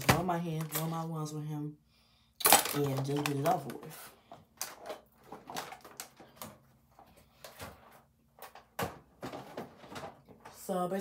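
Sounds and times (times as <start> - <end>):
plastic basket knocking and rattling: 7.5 - 10.6.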